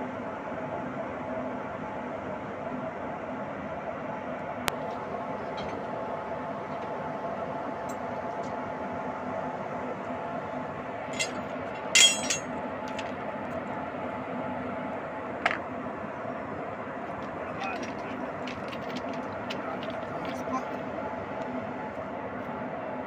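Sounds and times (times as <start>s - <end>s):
train running hum: 0.0s - 23.0s
metallic clinks: 11.2s - 13.0s.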